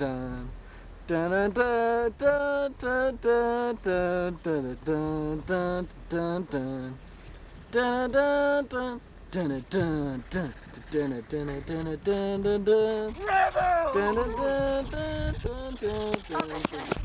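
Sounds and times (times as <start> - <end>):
person singing: 7.8 - 17.0.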